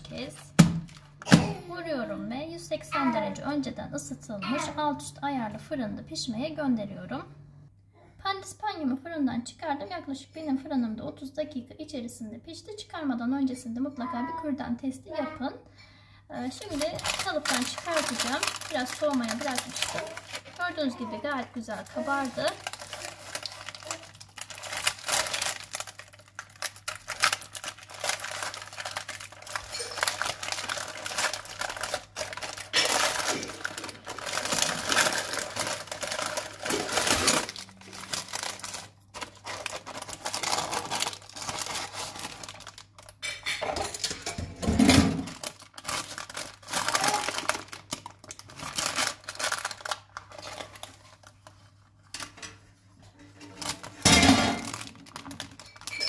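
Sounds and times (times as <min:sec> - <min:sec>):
parchment paper rustling: 0:16.4 - 0:43.2, 0:45.3 - 0:52.4
metal pan clattering on rack: 0:53.2 - 0:54.8.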